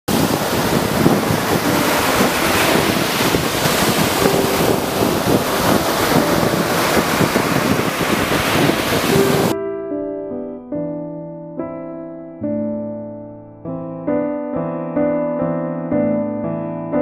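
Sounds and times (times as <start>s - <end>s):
waves breaking on beach: 0.1s - 9.5s.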